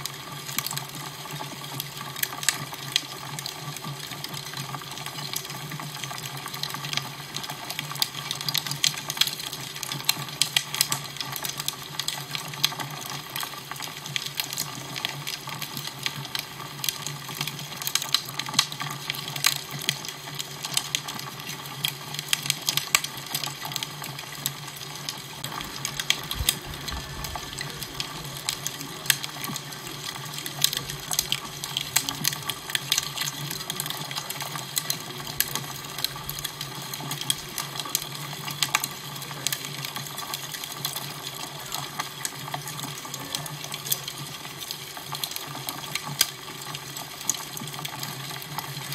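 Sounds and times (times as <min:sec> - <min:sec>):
fire crackling and popping: 0:00.0 - 0:48.9
low hum: 0:25.4 - 0:30.0.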